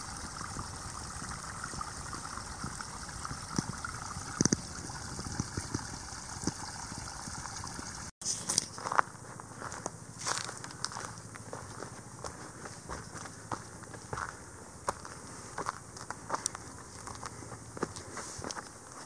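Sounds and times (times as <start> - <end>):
brook trickling over rocks: 0.0 - 8.2, 14.9 - 19.0.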